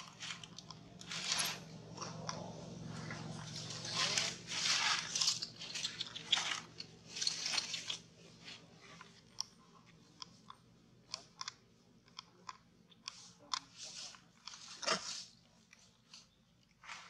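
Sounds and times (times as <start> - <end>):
dry leaves crackling and crunching: 2.8 - 7.8.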